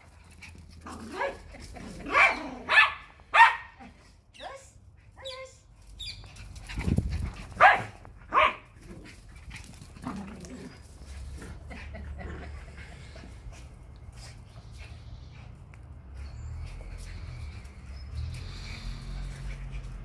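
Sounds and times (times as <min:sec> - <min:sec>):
dogs barking: 0:02.1 - 0:03.8, 0:07.5 - 0:08.8.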